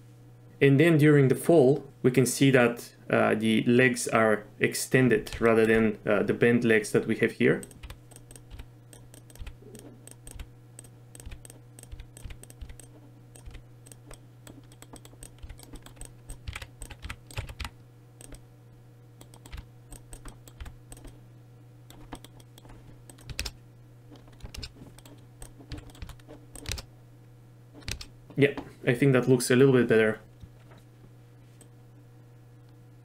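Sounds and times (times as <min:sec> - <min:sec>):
steady low hum: 0:00.0 - 0:33.0
keyboard keys clicking: 0:05.2 - 0:05.9, 0:07.6 - 0:18.4, 0:19.2 - 0:21.2, 0:21.9 - 0:26.9, 0:27.8 - 0:28.1
mouse buttons clicking: 0:07.6 - 0:17.6.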